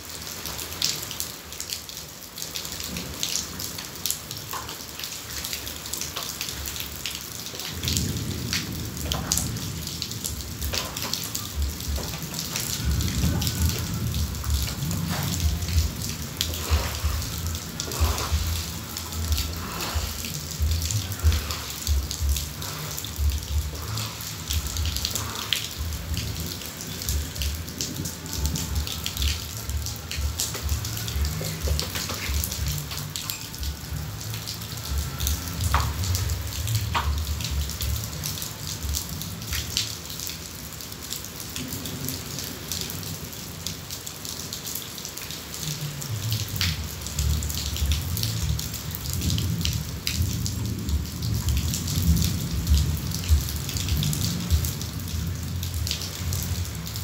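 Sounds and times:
heavy rain falling: 0.0s - 57.0s
low rumbling: 11.5s - 32.9s.

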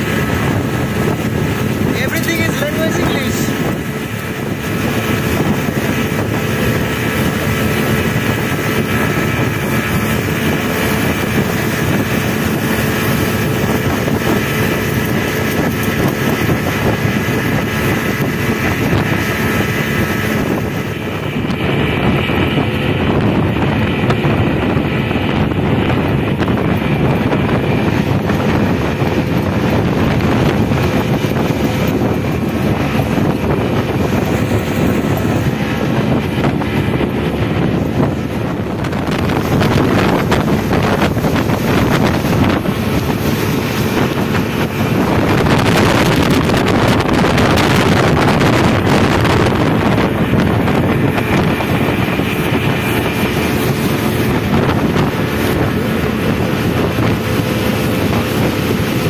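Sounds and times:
speedboat engine running: 0.0s - 59.0s
wind buffeting microphone: 0.0s - 59.0s.

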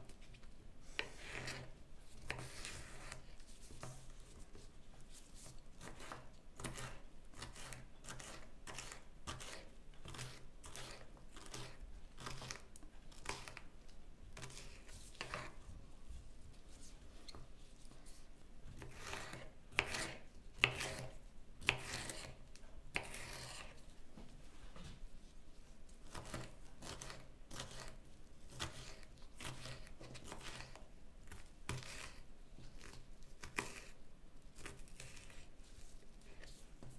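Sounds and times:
knife chopping on wooden board: 18.9s - 22.3s.

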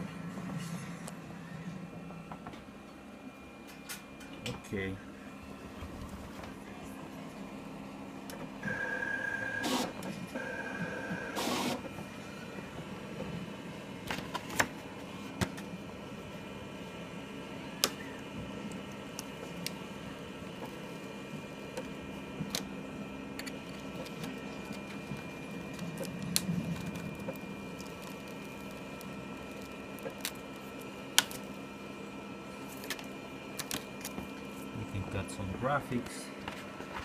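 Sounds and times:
steady faint hum: 0.0s - 37.0s
vinyl being peeled by hand: 17.6s - 34.8s.

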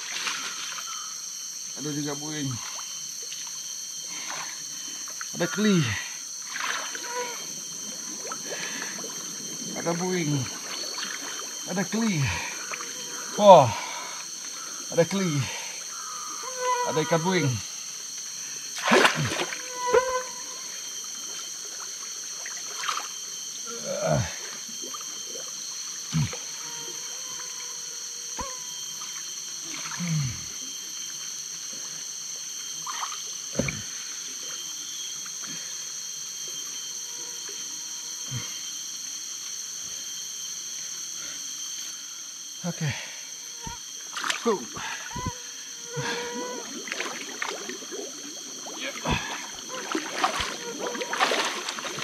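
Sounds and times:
insect chorus: 0.0s - 52.0s
water drips and splashes: 46.6s - 52.0s.

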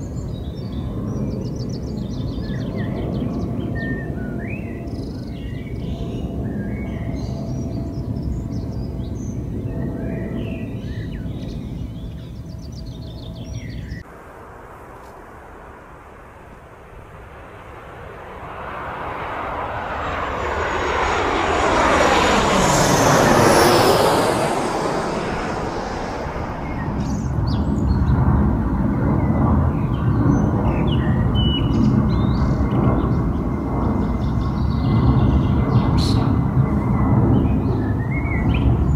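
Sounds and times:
airplane passing overhead: 0.0s - 38.9s.

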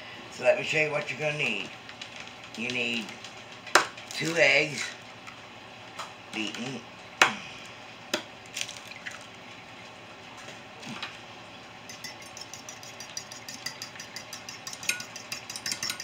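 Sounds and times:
fork clicking against dish: 11.9s - 16.0s.

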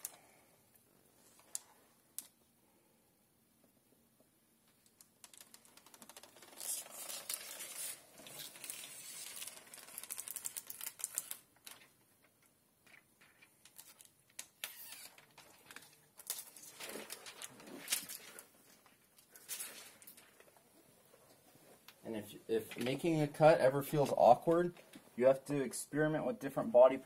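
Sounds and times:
film crackling and clicking: 4.6s - 22.0s.

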